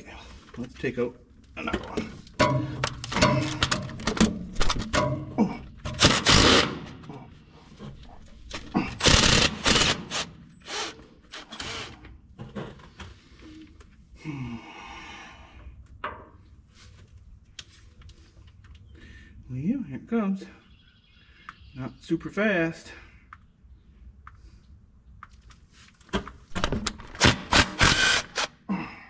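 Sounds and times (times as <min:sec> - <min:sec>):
harsh tool bursts: 0:05.9 - 0:07.0, 0:08.9 - 0:12.0, 0:27.1 - 0:28.6.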